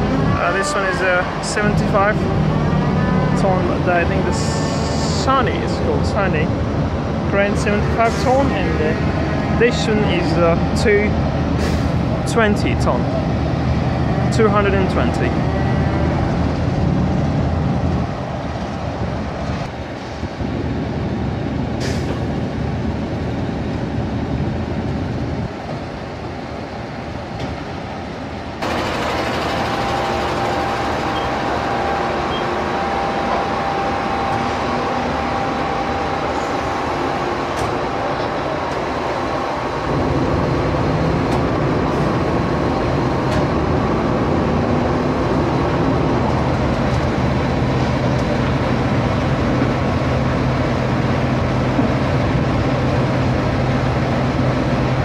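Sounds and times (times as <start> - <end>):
crane diesel engine running: 0.0 - 55.0.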